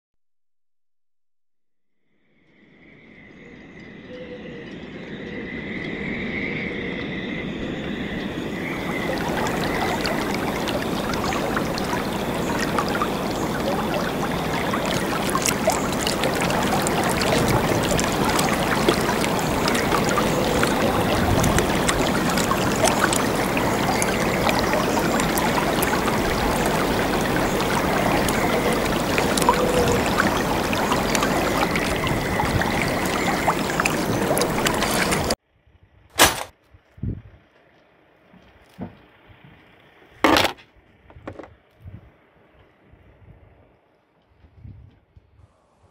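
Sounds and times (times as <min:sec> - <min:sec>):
water splashing around a kayak: 0:08.4 - 0:35.4.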